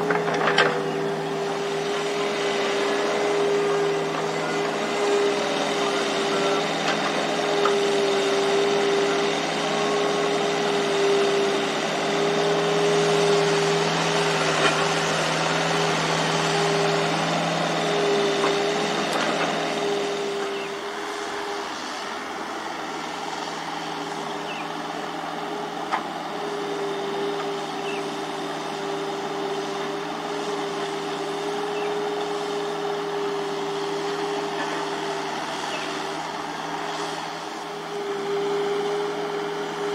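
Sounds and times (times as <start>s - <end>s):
excavator diesel engines running: 0.0s - 39.9s.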